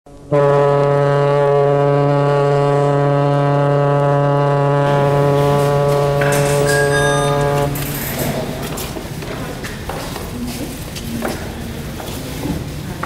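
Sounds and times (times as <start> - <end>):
ship's horn blast: 0.2 - 9.1.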